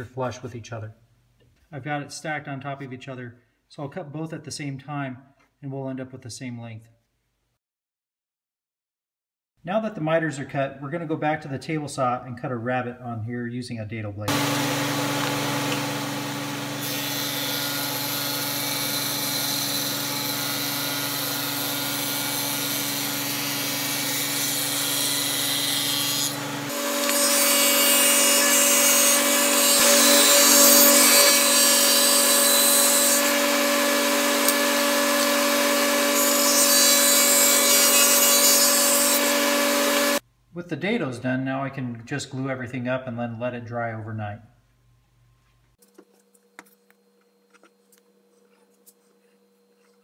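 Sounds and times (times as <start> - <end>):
table saw cutting wood: 14.3 - 40.2.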